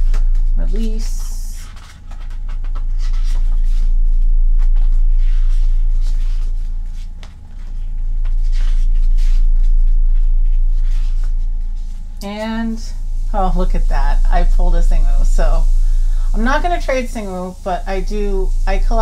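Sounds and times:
steady low rumble: 0:00.0 - 0:19.0
paper pages rustling: 0:00.1 - 0:03.9, 0:04.6 - 0:12.0.

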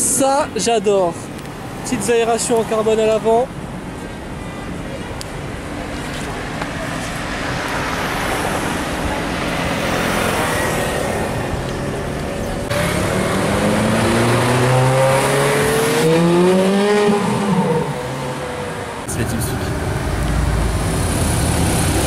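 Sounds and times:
street traffic rumble: 0:00.0 - 0:22.0
sports car engine accelerating: 0:10.3 - 0:22.0.

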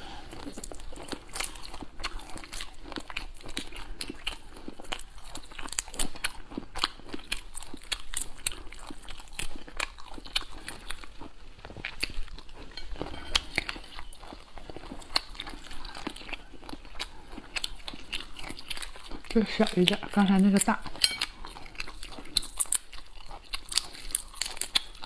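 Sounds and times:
chewing: 0:00.0 - 0:25.0
prawn shells cracking and peeling: 0:13.1 - 0:25.0.

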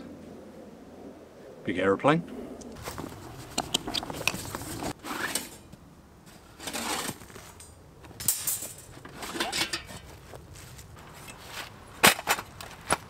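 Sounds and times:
steel plates clinking and scraping: 0:03.6 - 0:05.7, 0:06.3 - 0:10.2.

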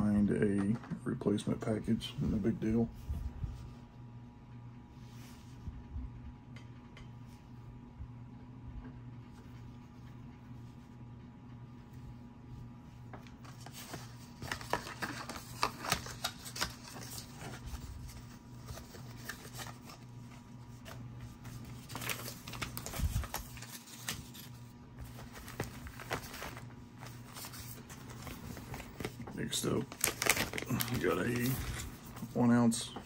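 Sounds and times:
plastic bags rustling: 0:13.3 - 0:32.9.

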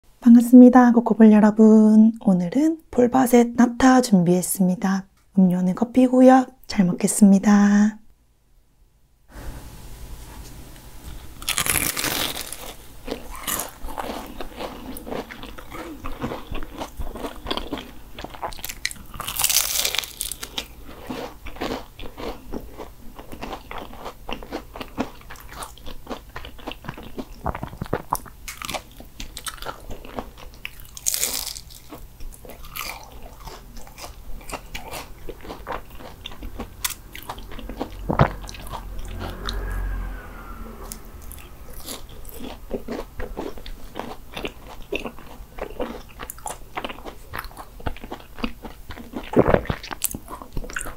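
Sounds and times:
pastry crunching while chewing: 0:11.4 - 0:39.7, 0:41.3 - 0:50.9.

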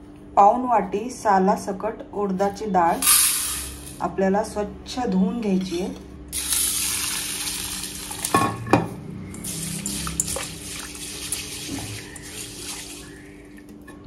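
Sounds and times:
water pouring into metal bowl: 0:06.4 - 0:08.3, 0:09.3 - 0:13.6
hand swishing lentils in water: 0:09.4 - 0:13.4.

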